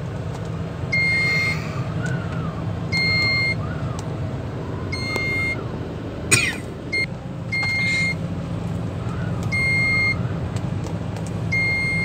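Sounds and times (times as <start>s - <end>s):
low steady rumble: 0.0s - 12.0s
high warning beeps: 0.9s - 1.6s, 2.9s - 3.6s, 5.0s - 5.6s, 6.9s - 8.2s, 9.6s - 10.2s, 11.5s - 12.0s.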